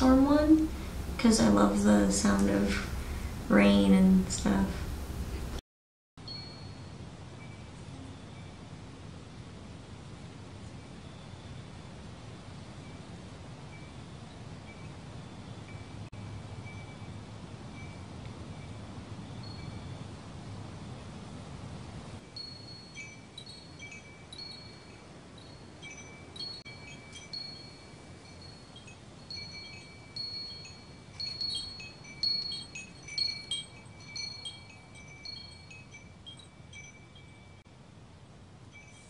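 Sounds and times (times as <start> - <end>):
chimes ringing: 0.0 - 5.5, 6.2 - 7.7, 22.3 - 37.6.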